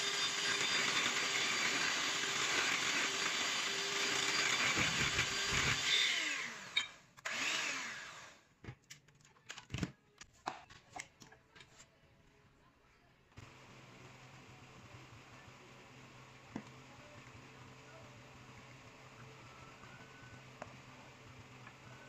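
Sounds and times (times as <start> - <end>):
electric whisk whirring: 0.0 - 8.5, 13.4 - 22.0.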